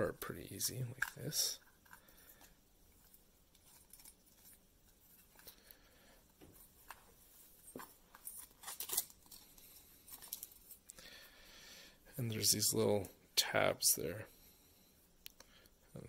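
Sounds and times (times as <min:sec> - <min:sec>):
cord rustling: 0:00.6 - 0:11.0.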